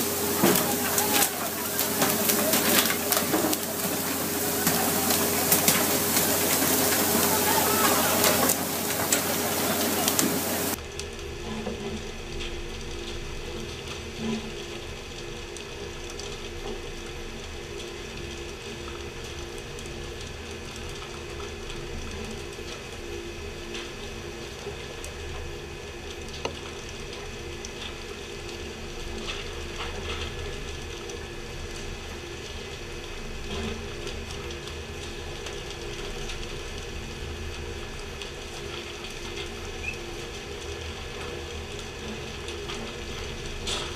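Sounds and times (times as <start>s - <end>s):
boat machinery humming: 0.0s - 10.8s
rushing water spray: 0.0s - 10.8s.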